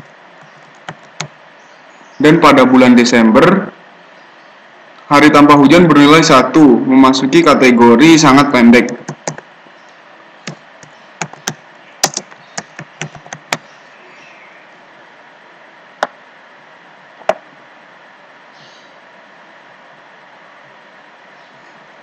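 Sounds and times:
keyboard typing: 0:00.0 - 0:01.3, 0:08.8 - 0:09.4, 0:10.4 - 0:13.7
faint steady hiss: 0:00.0 - 0:22.0
mouse clicks: 0:10.5 - 0:13.6.

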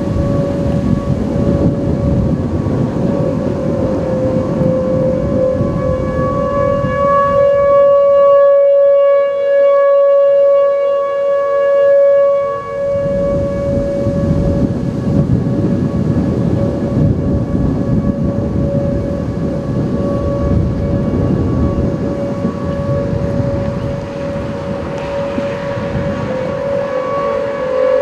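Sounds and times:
loud low rumbling: 0:00.0 - 0:08.0, 0:12.8 - 0:28.0
tornado sirens steady tone: 0:00.0 - 0:28.0.

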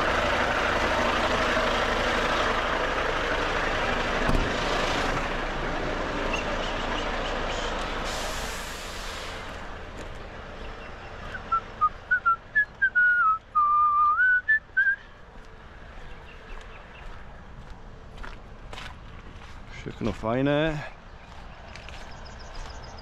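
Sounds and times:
person whistling a tune: 0:11.4 - 0:15.1.

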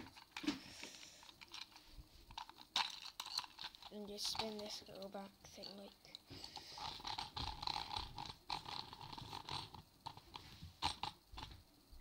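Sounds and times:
pencil sharpener grinding: 0:02.3 - 0:11.5.

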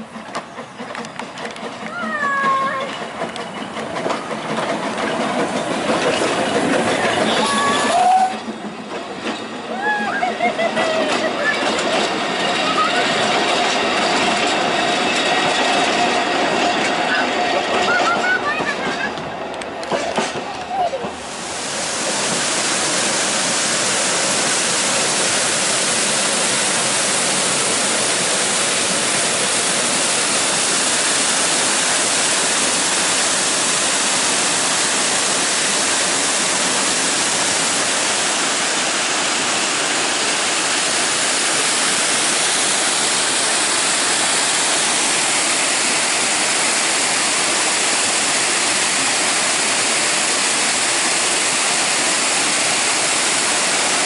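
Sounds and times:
waterfall rushing: 0:20.6 - 0:54.0.

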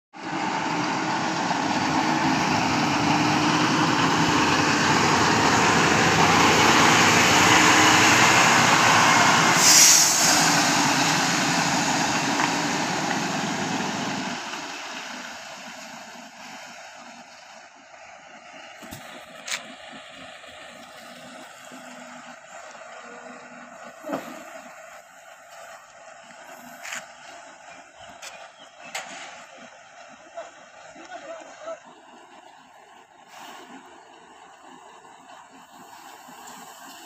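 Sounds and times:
truck diesel engine passing: 0:00.2 - 0:37.0
short air hiss: 0:09.6 - 0:10.8.

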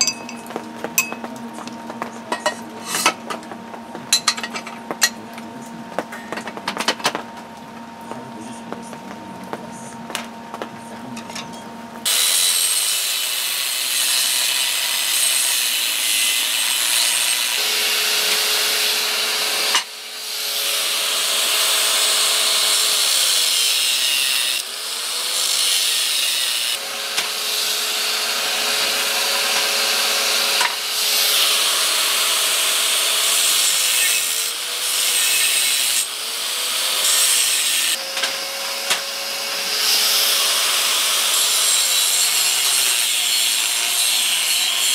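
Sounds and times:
angle grinder cutting steel: 0:00.0 - 0:01.4, 0:02.0 - 0:03.5, 0:12.0 - 0:44.9.

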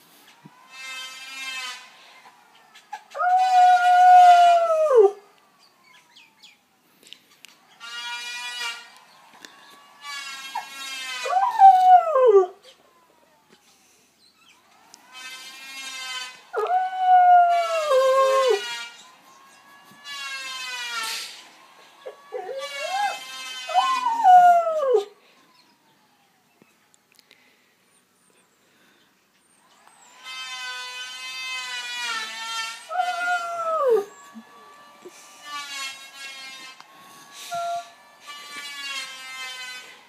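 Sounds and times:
dog howling: 0:02.9 - 0:05.2, 0:10.6 - 0:13.4, 0:16.6 - 0:18.7, 0:22.0 - 0:25.2, 0:32.8 - 0:34.5, 0:37.4 - 0:38.0
planer whining: 0:29.7 - 0:40.0.

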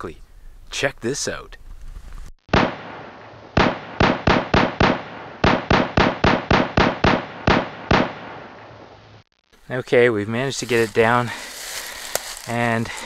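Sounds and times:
sharp bangs: 0:02.5 - 0:09.0.

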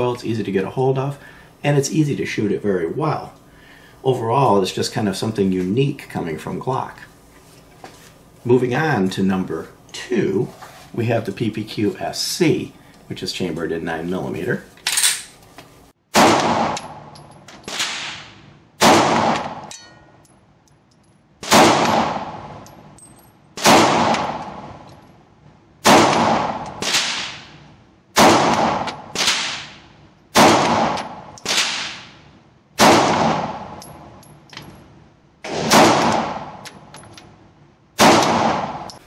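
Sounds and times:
pistol shots echoing indoors: 0:16.1 - 0:17.1, 0:17.7 - 0:19.7, 0:21.4 - 0:22.6, 0:23.6 - 0:24.8, 0:25.8 - 0:27.6, 0:28.2 - 0:32.2, 0:32.8 - 0:33.8, 0:35.5 - 0:36.7, 0:38.0 - 0:39.0.

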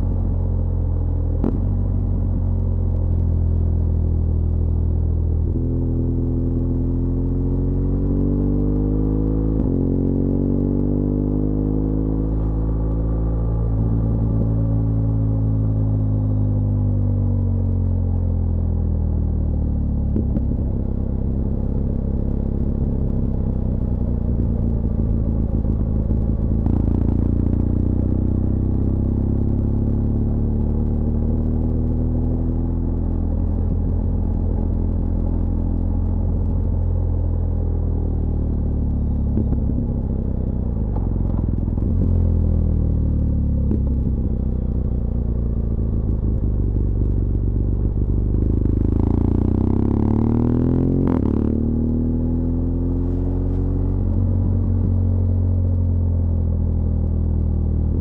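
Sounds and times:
motorcycle engine revving: 0:40.8 - 0:56.2.

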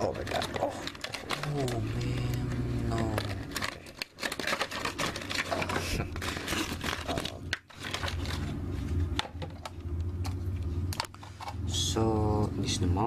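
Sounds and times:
plastic packaging crinkling: 0:00.0 - 0:09.8.

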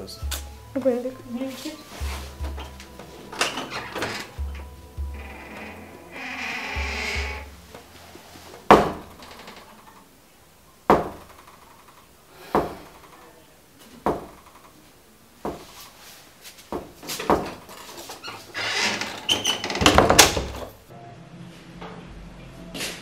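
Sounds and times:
knocks on wooden door: 0:08.7 - 0:09.2, 0:10.9 - 0:11.3, 0:14.1 - 0:14.4.

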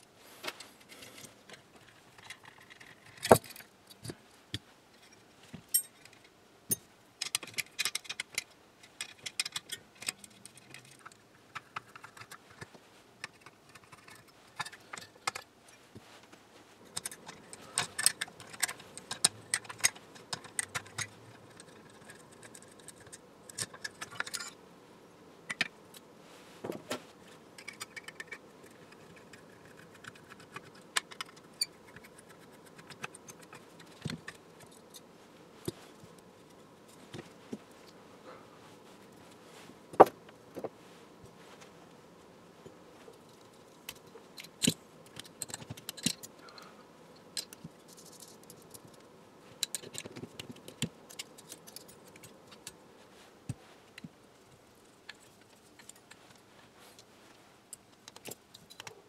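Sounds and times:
small metal parts clicking and rattling: 0:00.7 - 0:15.9, 0:16.8 - 0:24.6, 0:27.5 - 0:38.0, 0:43.0 - 0:52.8, 0:53.6 - 0:57.1, 0:57.7 - 0:59.0.

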